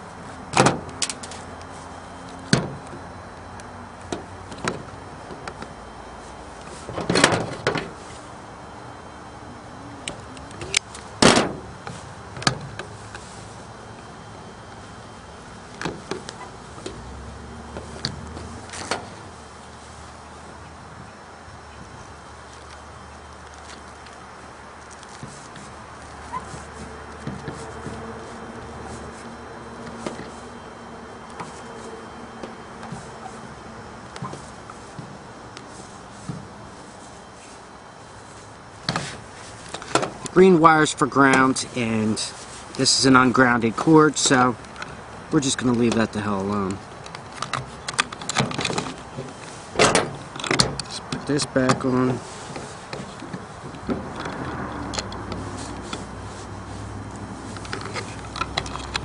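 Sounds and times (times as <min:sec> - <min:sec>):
wires scraping and rustling: 0:00.0 - 0:20.8, 0:21.4 - 0:59.0.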